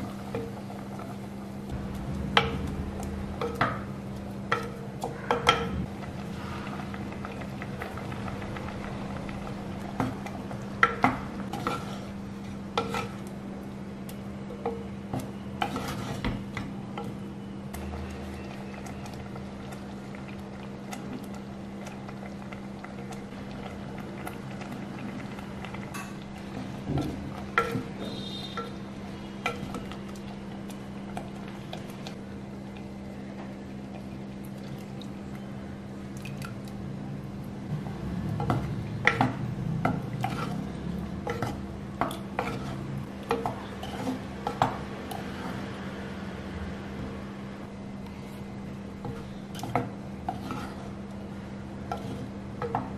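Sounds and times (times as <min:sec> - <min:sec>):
steady low hum: 0:00.0 - 0:52.9
wooden spoon stirring in clay pot: 0:09.4 - 0:13.3, 0:14.6 - 0:16.6, 0:38.4 - 0:45.8, 0:48.1 - 0:52.9
spoon knocking and scraping pot: 0:12.8 - 0:13.2, 0:38.3 - 0:40.6, 0:41.2 - 0:44.8, 0:49.1 - 0:50.9.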